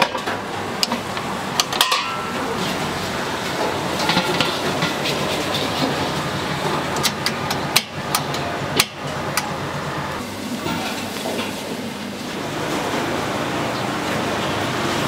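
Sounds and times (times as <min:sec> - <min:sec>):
gas burner roar: 0:00.0 - 0:15.0
metal utensil clanking on wok: 0:01.6 - 0:02.6, 0:03.6 - 0:06.2.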